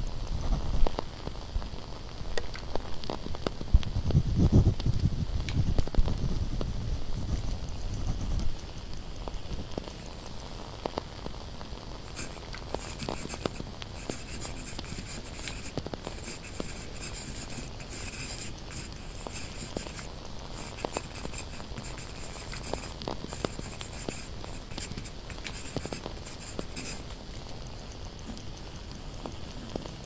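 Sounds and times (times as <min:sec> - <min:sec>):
candle popping and crackling: 0:00.2 - 0:30.0
pen scratching on paper: 0:12.1 - 0:27.0.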